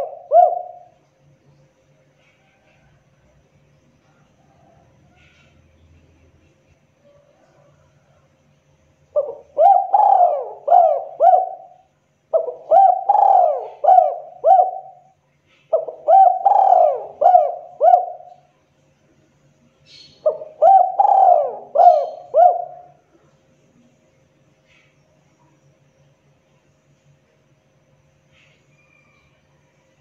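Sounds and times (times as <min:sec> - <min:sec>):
dove cooing: 0:00.0 - 0:01.0, 0:09.1 - 0:18.5, 0:20.0 - 0:23.1.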